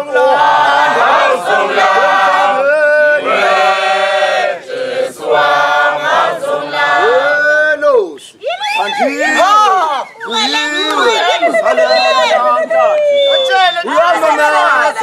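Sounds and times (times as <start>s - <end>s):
group choral singing: 0.0s - 7.3s.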